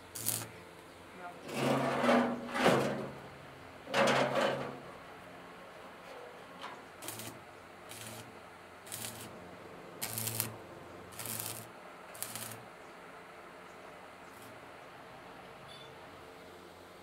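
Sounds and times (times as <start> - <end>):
welding arc crackling: 0.0 - 0.6, 7.0 - 9.4, 10.0 - 12.7, 14.3 - 14.6
low welding hum: 0.0 - 17.0.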